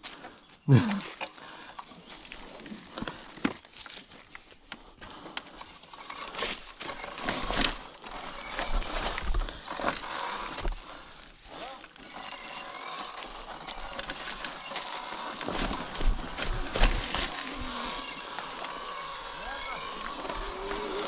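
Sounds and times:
tyres crunching over dry leaves: 0:00.0 - 0:21.0.

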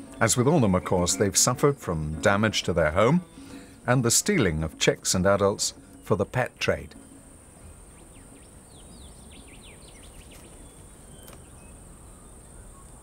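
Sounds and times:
small bird chirping: 0:05.7 - 0:13.0.

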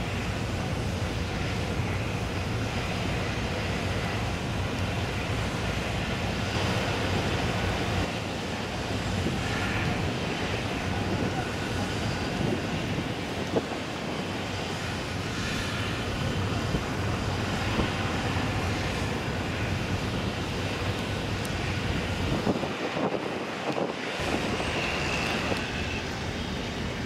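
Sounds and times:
harbour noise: 0:00.0 - 0:27.0
ship diesel engines droning: 0:00.0 - 0:27.0.

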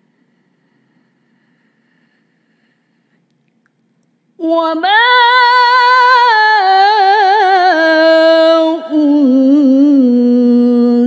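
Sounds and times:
woman chanting melodically: 0:04.4 - 0:11.0.

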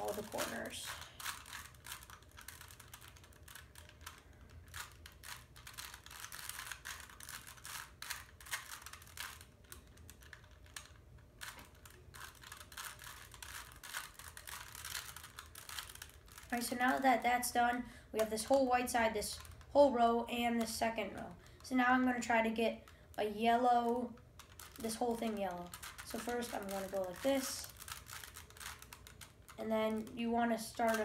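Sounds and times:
puzzle cube twisting clicks: 0:00.0 - 0:17.5, 0:23.8 - 0:31.0.

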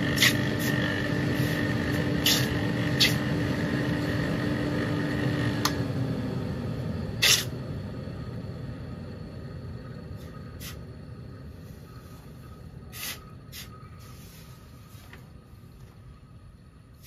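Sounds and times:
hot metal hissing in water: 0:00.0 - 0:03.2, 0:07.2 - 0:07.5, 0:10.2 - 0:10.8, 0:11.6 - 0:14.8
steady low hum: 0:00.0 - 0:17.0.

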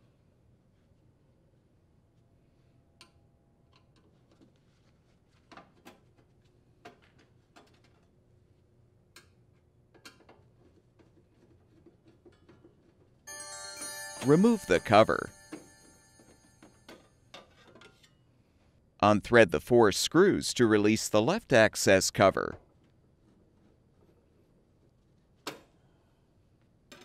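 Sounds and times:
bell-like chime sound effect: 0:13.3 - 0:17.2.

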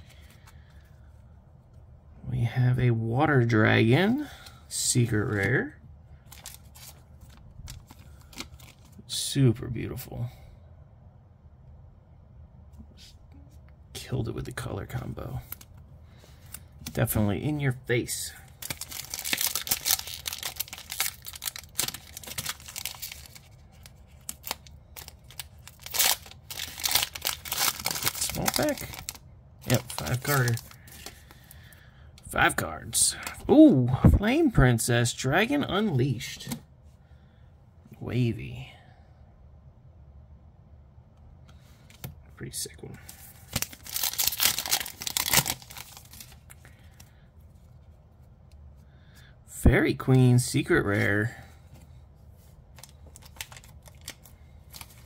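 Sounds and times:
foil wrapper crinkling: 0:18.5 - 0:31.5, 0:43.4 - 0:47.0, 0:52.7 - 0:55.0.

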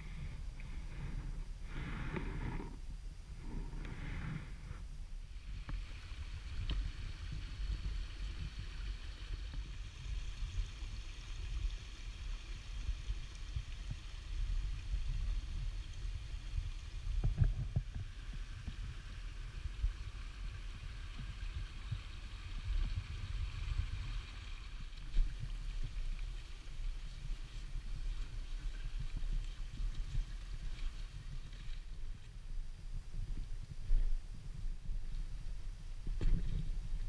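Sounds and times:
wind rumble on microphone: 0:00.0 - 0:37.0
creek running over stones: 0:05.4 - 0:32.7.

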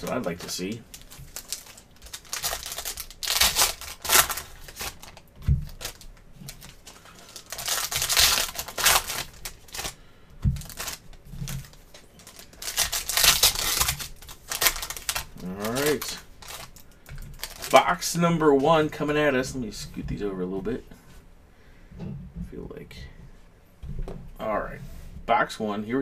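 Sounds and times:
foil wrappers tearing and crinkling: 0:00.0 - 0:10.0, 0:10.6 - 0:17.9.

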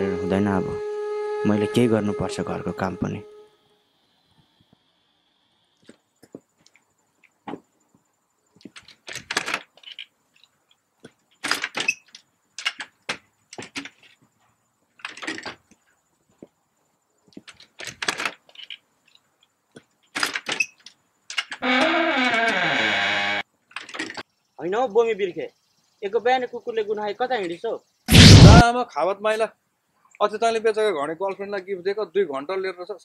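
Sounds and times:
wooden chairs knocking and scraping: 0:07.4 - 0:08.0, 0:15.0 - 0:16.5.

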